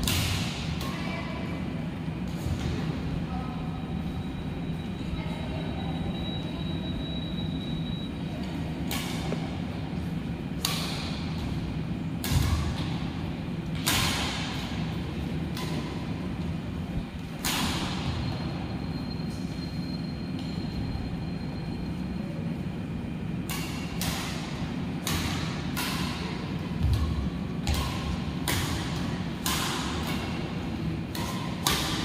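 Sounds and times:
badminton racket hitting shuttlecock: 0.0 - 1.0, 10.6 - 11.6, 12.2 - 13.1, 13.7 - 14.9, 15.5 - 16.2, 17.4 - 18.2, 23.4 - 32.0
steady low rumble: 0.0 - 32.0.

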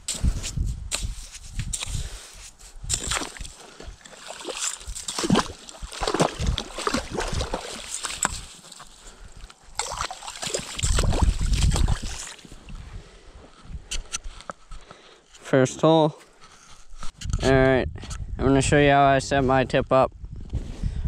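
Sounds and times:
ice skimmer sloshing and scraping: 2.9 - 12.8.

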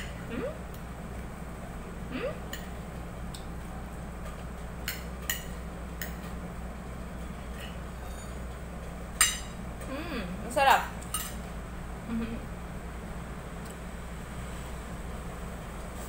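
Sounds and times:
steady low hum: 0.0 - 16.0
cutlery clinking on a plate: 4.8 - 6.3, 7.5 - 8.5, 9.2 - 9.6, 11.1 - 11.4.

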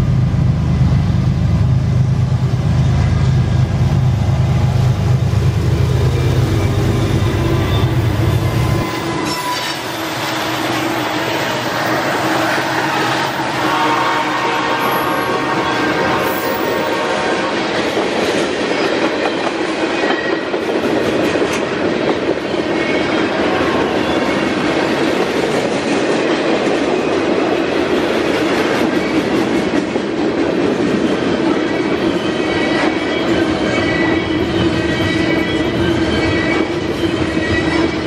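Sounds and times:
train wheels rolling on rail: 0.0 - 38.0
high wheel squeals: 5.8 - 14.2.

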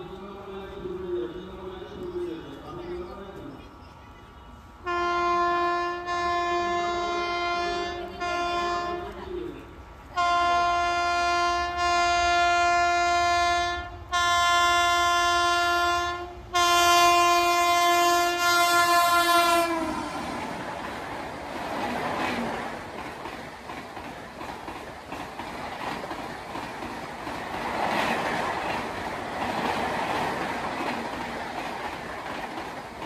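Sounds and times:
rush of passing train: 0.0 - 33.0
locomotive horn blasts: 4.5 - 9.2, 10.2 - 20.2.

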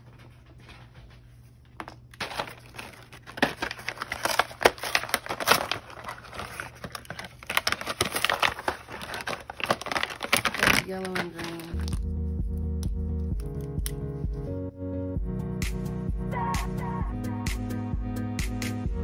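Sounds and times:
plastic blister pack crinkling: 1.8 - 12.1.

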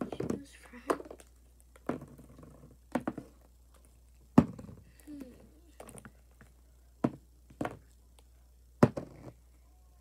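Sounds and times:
plastic tubs knocking on table: 1.8 - 3.4, 4.4 - 4.8, 7.0 - 7.8, 8.8 - 9.3.

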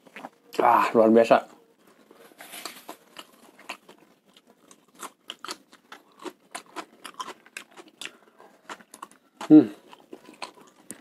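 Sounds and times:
chewing and mouth clicks: 3.1 - 11.0.

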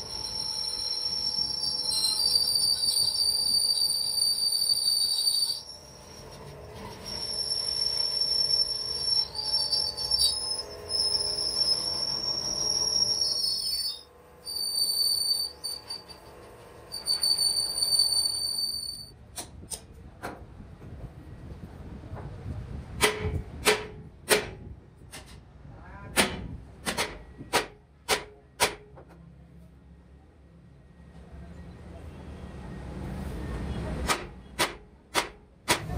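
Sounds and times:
lathe tool squealing on steel: 0.0 - 19.1.

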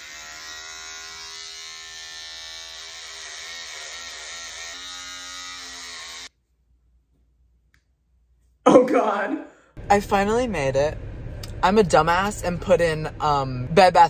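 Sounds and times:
electric hair clippers buzzing: 0.0 - 6.3.

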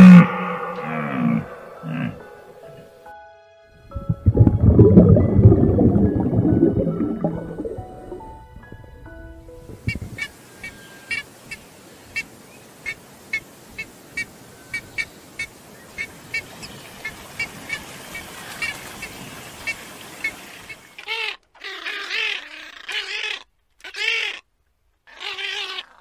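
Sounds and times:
ibis honking calls: 0.0 - 3.0
background hiss: 0.0 - 21.0.

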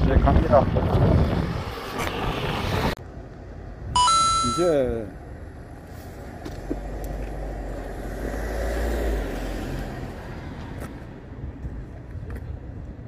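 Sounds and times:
car passing: 0.4 - 3.5, 5.2 - 12.0.

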